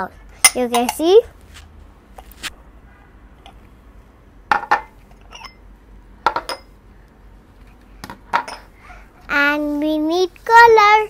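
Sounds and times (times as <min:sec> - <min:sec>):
glass bowls clinking on table: 0:04.5 - 0:05.6, 0:06.3 - 0:06.8, 0:08.3 - 0:08.7.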